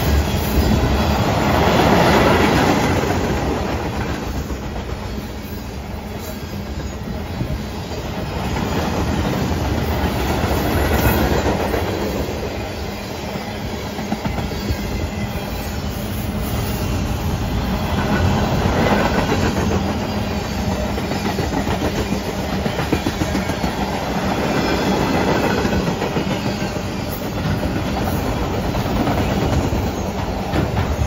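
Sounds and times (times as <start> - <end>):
train wheels rumbling on rail: 0.0 - 31.0.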